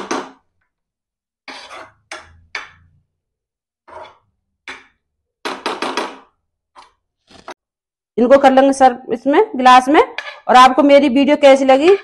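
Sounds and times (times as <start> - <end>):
spoon scraping frying pan: 1.4 - 2.9, 3.8 - 4.4, 9.8 - 10.7.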